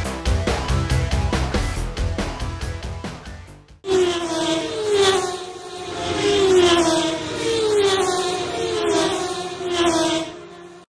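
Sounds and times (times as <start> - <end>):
racing cars passing: 3.9 - 10.9.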